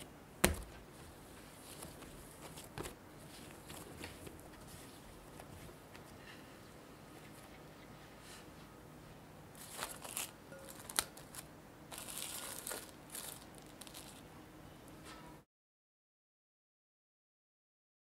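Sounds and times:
cling film crinkling: 9.6s - 14.2s.

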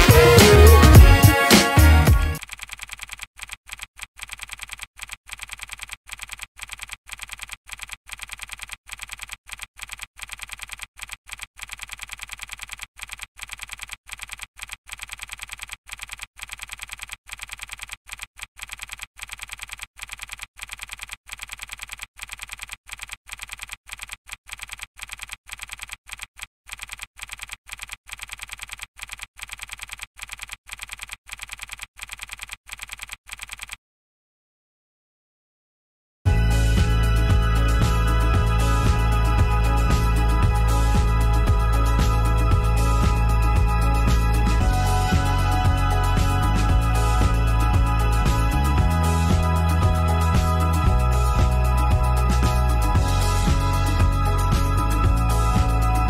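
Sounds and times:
keyboard typing clicks: 2.4s - 33.8s.

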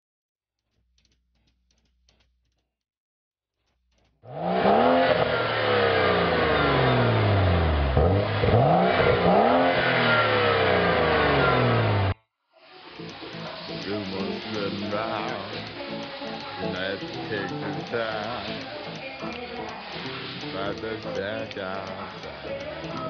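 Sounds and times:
car engine revving: 4.2s - 12.2s, 12.9s - 23.0s.

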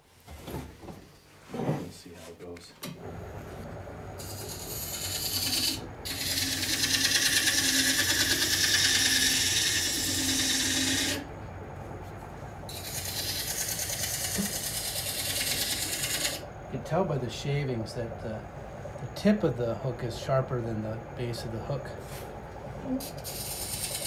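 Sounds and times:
low steady hum: 0.1s - 24.0s
scraper cutting spinning wood: 4.2s - 11.3s, 12.7s - 16.5s, 23.1s - 24.0s.

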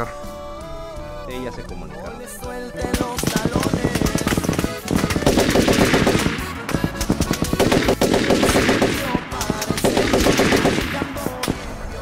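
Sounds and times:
music: 0.0s - 12.0s
rapid gunfire: 2.8s - 11.8s.

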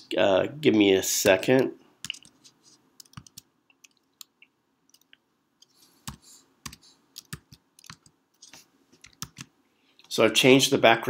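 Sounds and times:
keyboard keys clicking: 3.0s - 4.3s, 6.1s - 8.2s, 9.0s - 9.5s.

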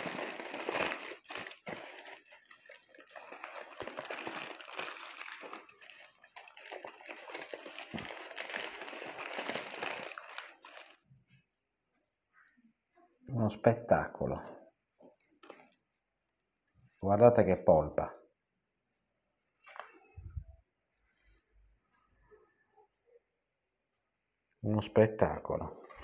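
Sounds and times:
foil and paper crinkling: 0.0s - 11.0s.

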